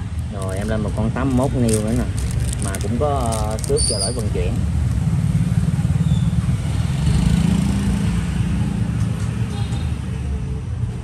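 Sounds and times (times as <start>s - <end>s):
vehicle engine rumbling: 0.0s - 6.9s.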